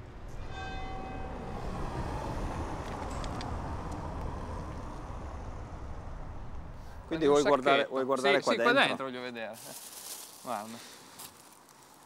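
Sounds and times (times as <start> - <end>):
low traffic rumble: 0.0 - 12.0.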